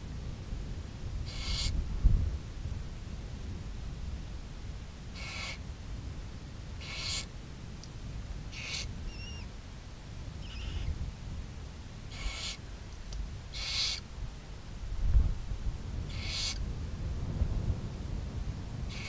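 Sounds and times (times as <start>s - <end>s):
steady low rumble: 0.0s - 19.0s
owl hissing calls: 1.2s - 1.8s, 5.1s - 5.6s, 6.8s - 7.3s, 8.5s - 9.5s, 10.4s - 11.0s, 12.1s - 12.7s, 13.5s - 14.1s, 16.1s - 16.6s.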